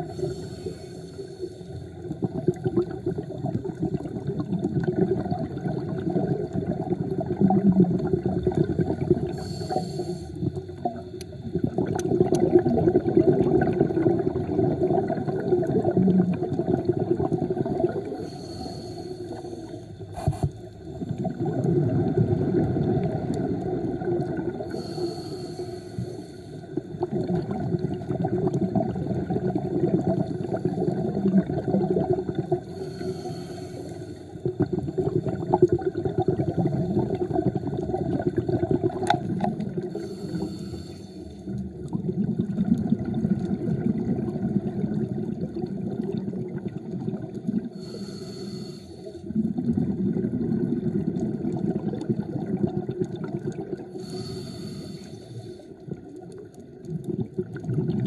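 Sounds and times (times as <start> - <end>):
rumbling exhaust bubbles underwater: 0.0 - 58.0
regulator hiss on inhalation: 0.1 - 1.8, 9.3 - 11.1, 18.2 - 20.8, 24.7 - 26.8, 32.6 - 34.4, 39.8 - 41.6, 47.8 - 49.3, 53.9 - 55.8.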